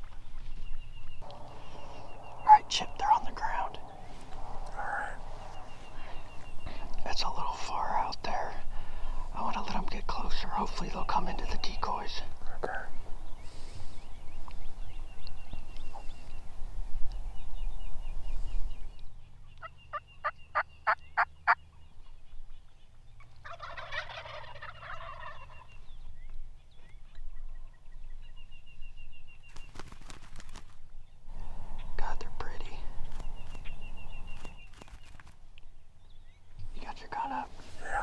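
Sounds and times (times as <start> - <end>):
low rumbling noise: 1.1 - 10.8, 31.3 - 34.4
turkey gobbling: 19.6 - 21.6, 23.3 - 25.8
turkey yelps: 23.4 - 25.7.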